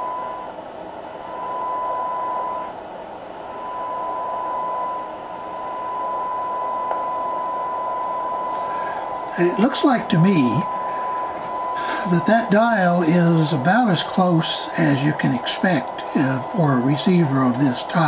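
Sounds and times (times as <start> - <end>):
radio hiss: 8.4 - 18.0.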